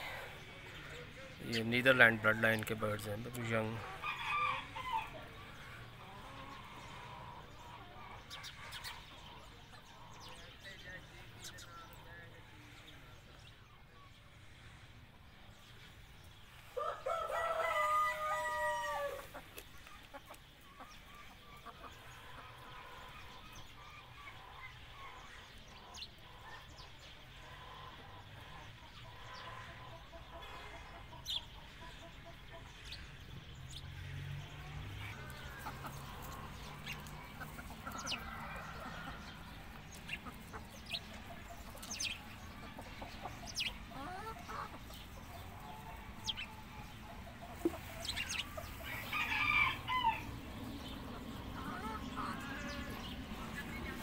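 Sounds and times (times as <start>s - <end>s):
chicken clucking: 0.0s - 10.7s, 16.8s - 32.7s, 34.5s - 54.0s
rooster crowing: 4.0s - 5.4s, 16.8s - 19.3s, 48.8s - 50.5s.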